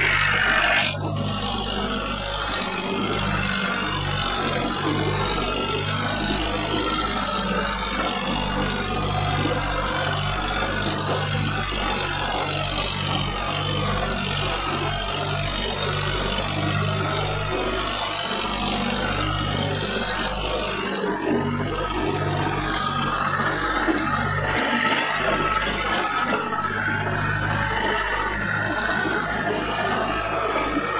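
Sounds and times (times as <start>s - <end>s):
loud rushing noise: 0.0s - 1.2s
motor engine running: 0.0s - 30.9s.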